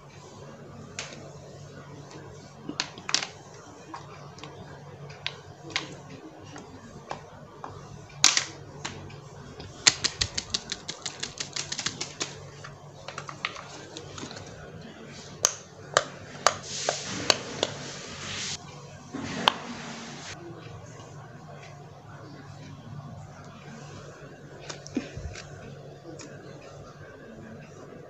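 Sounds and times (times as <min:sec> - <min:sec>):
toy and cards clicking: 0:09.9 - 0:12.4.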